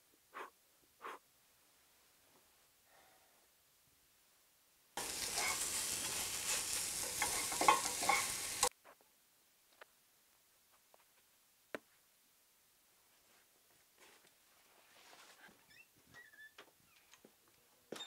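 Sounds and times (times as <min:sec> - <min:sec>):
food sizzling in a pan: 0:05.0 - 0:08.7
utensil clicking in a pan: 0:06.7 - 0:08.7
small rustles: 0:13.0 - 0:17.4.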